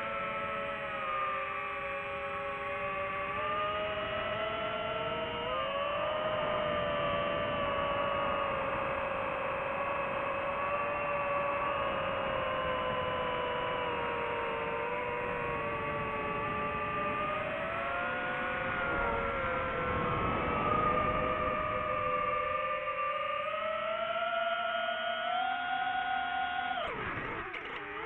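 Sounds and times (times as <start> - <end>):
drone propellers whining: 0.0 - 28.0.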